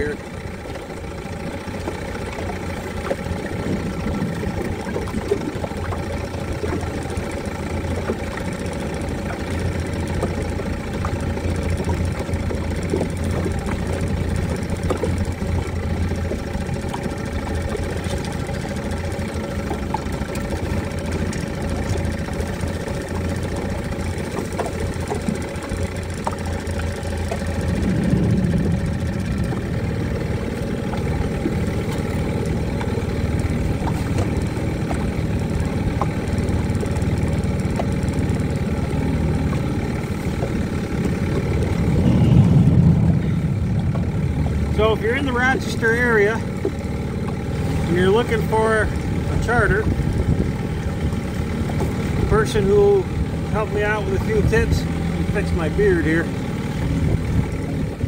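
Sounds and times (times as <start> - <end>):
boat motor droning: 0.0 - 58.0
steady rushing noise: 24.9 - 31.7, 39.6 - 45.0.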